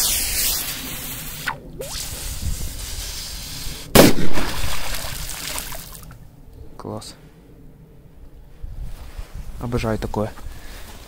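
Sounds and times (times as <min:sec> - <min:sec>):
steady hiss: 0:00.0 - 0:04.1
firecracker bang underwater: 0:04.0 - 0:05.2.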